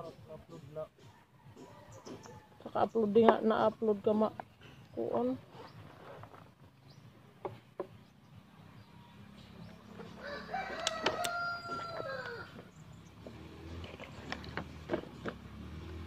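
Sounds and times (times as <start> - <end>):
rooster crowing: 10.1 - 12.6.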